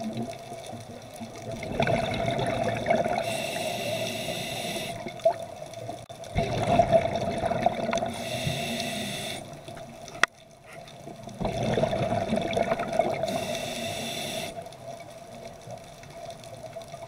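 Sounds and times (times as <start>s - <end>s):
exhaled bubbles underwater: 0.0s - 10.2s, 11.0s - 17.0s
regulator hissing inhale: 3.2s - 5.0s, 8.1s - 9.6s, 13.2s - 14.6s.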